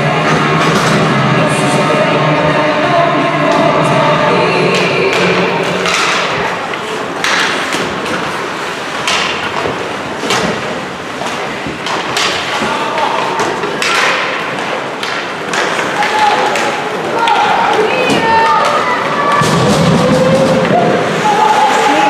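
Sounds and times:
sticks and puck knocking: 4.7s - 20.9s.

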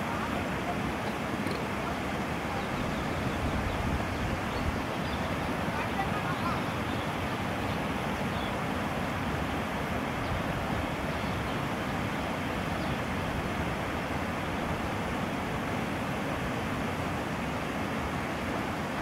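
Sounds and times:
river water rushing over weir: 0.0s - 19.0s.

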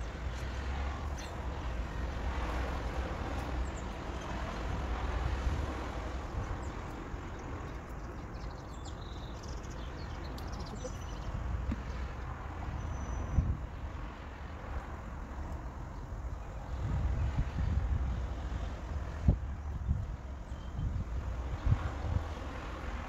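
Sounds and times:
wind rumbling on microphone: 0.0s - 23.0s.

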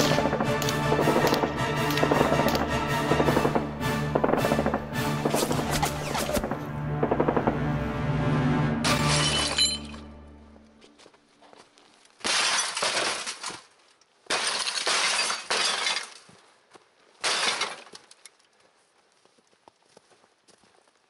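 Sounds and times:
music: 0.0s - 11.3s.

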